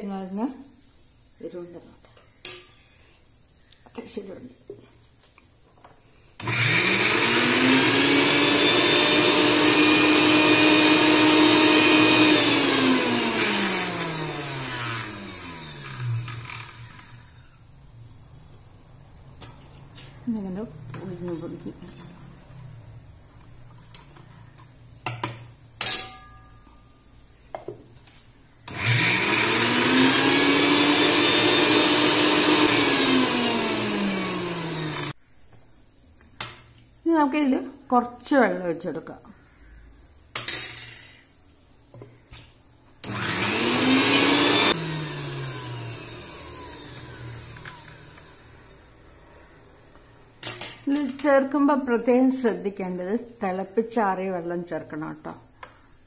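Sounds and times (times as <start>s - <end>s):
mixer grinder motor whining: 6.4s - 17.6s, 28.6s - 35.2s, 43.0s - 49.1s.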